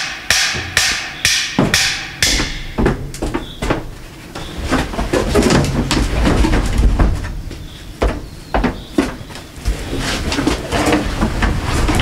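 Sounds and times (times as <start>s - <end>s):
sharp ringing knocks: 0.0s - 3.9s.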